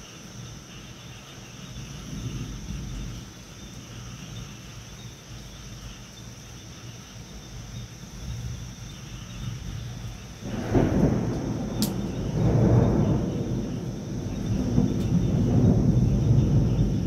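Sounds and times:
night insects chirring: 0.0 - 17.0
distant thunder rumbling: 1.7 - 4.6, 9.3 - 17.0.

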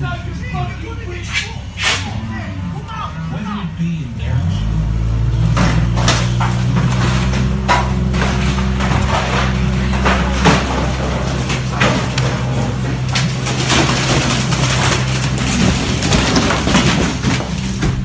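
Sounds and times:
excavator diesel engine hum: 0.0 - 18.0
building debris crashing: 4.4 - 18.0.

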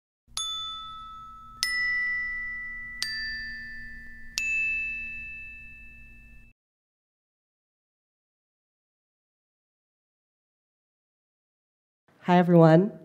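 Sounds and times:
bell-like chime notes: 0.4 - 6.5.

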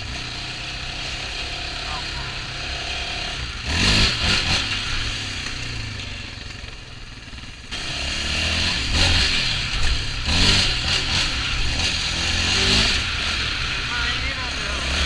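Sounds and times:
quad bike engine revving: 0.0 - 15.0.

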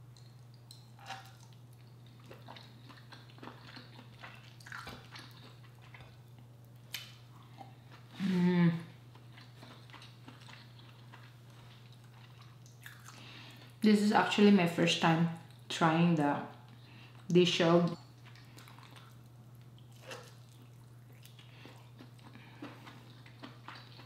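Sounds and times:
person chewing: 0.1 - 13.8, 18.2 - 24.0
person humming: 8.2 - 8.9.

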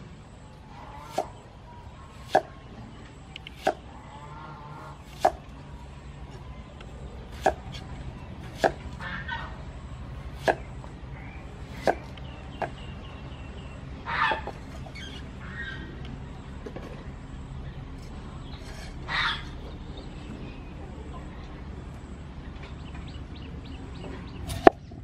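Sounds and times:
knife chopping on wooden board: 1.1 - 1.3, 2.2 - 2.5, 3.5 - 3.8, 5.1 - 5.4, 7.3 - 7.8, 8.4 - 8.8, 10.4 - 10.6.

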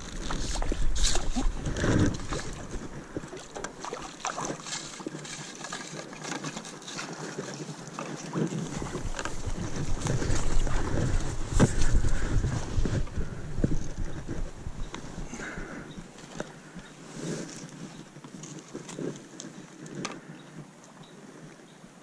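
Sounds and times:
water splashing: 0.0 - 12.7
handling knocks and scrapes: 0.0 - 20.2
rustling through brush: 0.0 - 20.7.

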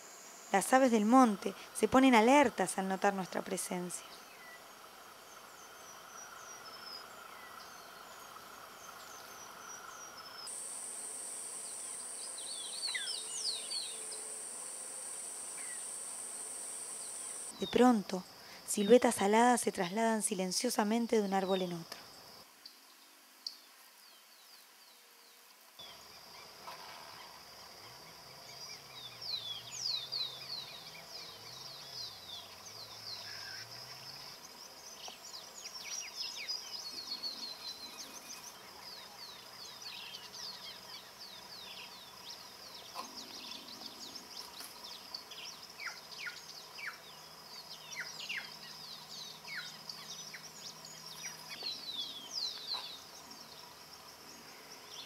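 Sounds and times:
high-pitched insect drone: 4.6 - 18.9
birds calling: 36.0 - 53.6.

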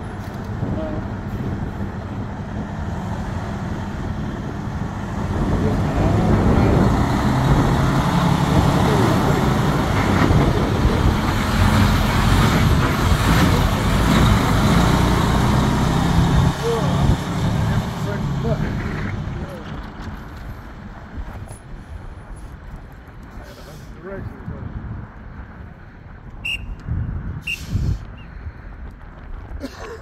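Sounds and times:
truck diesel engine running: 0.0 - 21.1.

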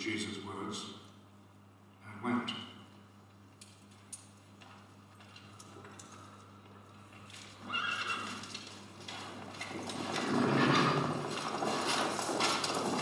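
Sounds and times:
horse hoofbeats: 4.6 - 13.0
horse whinnying: 7.6 - 8.5.

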